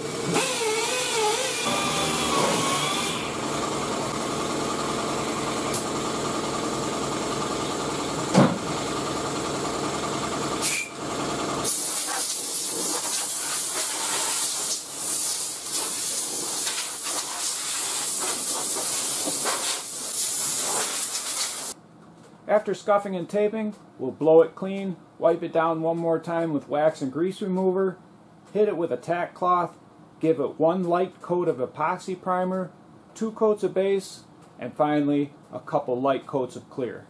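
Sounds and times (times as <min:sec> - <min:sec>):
pneumatic sander running: 0:00.0 - 0:21.8
compressed air hissing from nozzle: 0:10.6 - 0:10.9, 0:11.6 - 0:21.8.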